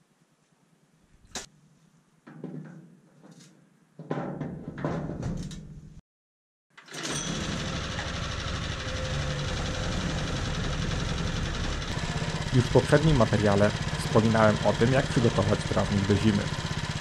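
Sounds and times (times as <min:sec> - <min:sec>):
lawn mower petrol engine running: 0:06.8 - 0:17.0.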